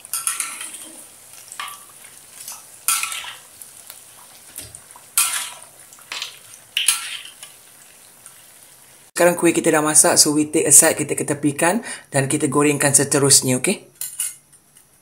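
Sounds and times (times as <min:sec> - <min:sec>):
metal spatula scraping a wok: 0:00.0 - 0:01.8, 0:05.2 - 0:05.7, 0:06.8 - 0:07.5
hot oil sizzling: 0:00.0 - 0:15.0.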